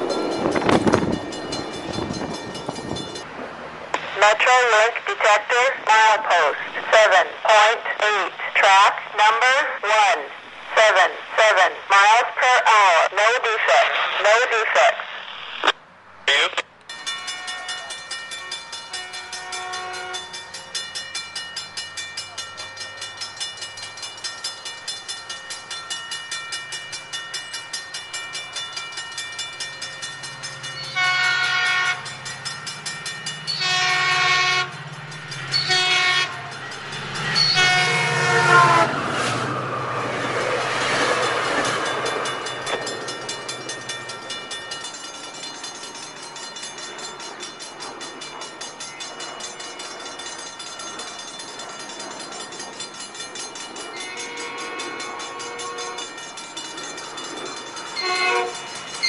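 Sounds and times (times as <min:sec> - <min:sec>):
crossing bell ringing: 0:00.0 - 0:03.4, 0:16.8 - 0:59.0
train rumbling: 0:00.0 - 0:14.4, 0:15.2 - 0:59.0
train air horn blasts: 0:19.3 - 0:20.3, 0:30.9 - 0:32.1, 0:33.6 - 0:34.8, 0:35.5 - 0:36.5, 0:37.4 - 0:39.0, 0:54.0 - 0:56.1, 0:58.0 - 0:58.7.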